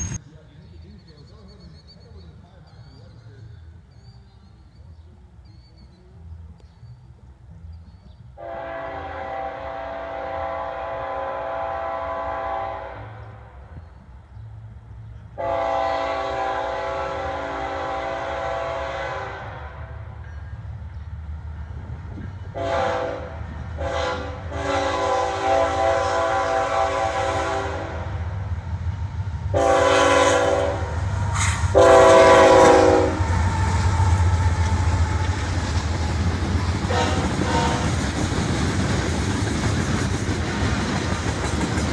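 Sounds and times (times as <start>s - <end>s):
train rumbling past on rails: 0.0s - 5.8s, 7.2s - 41.9s
train air horn blasts: 8.4s - 13.5s, 15.4s - 20.2s, 22.5s - 28.2s, 29.5s - 35.4s, 36.9s - 38.0s.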